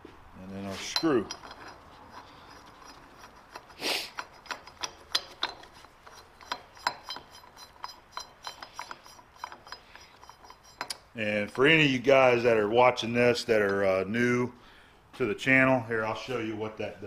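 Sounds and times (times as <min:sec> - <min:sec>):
short metal scrape: 0:00.7 - 0:04.4
metal parts clicking and clinking: 0:00.7 - 0:11.1.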